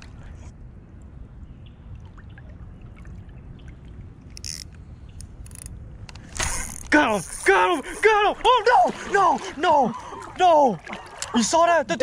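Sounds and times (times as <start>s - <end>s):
river water running: 1.7s - 12.0s
fishing reel clicking: 4.4s - 4.7s, 5.3s - 5.7s.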